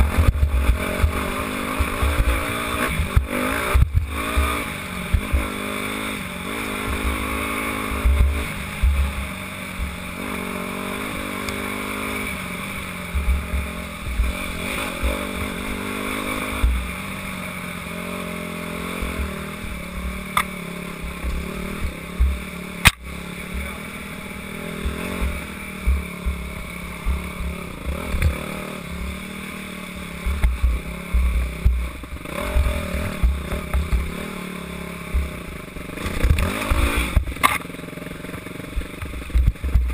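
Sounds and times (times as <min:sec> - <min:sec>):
dirt bike engine revving: 0:00.0 - 0:39.9
sharp click: 0:20.3 - 0:20.6, 0:22.8 - 0:23.1, 0:36.0 - 0:37.7.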